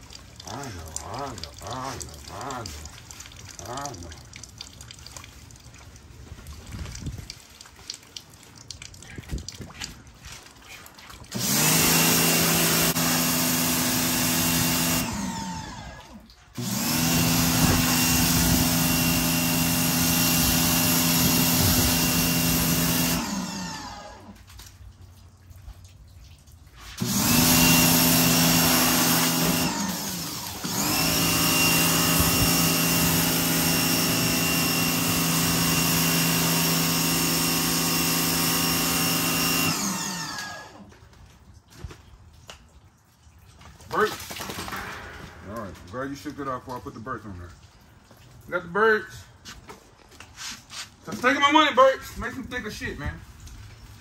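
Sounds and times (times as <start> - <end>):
motor winding down: 0.4 - 2.8, 11.3 - 24.4, 27.0 - 40.9
electric pressure washer running: 11.3 - 24.4, 26.9 - 40.9.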